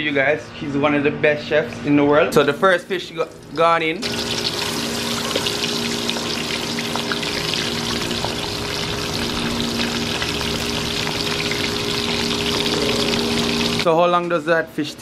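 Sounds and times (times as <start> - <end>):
fish deep-frying in oil: 2.6 - 13.9
low hum: 4.0 - 13.8.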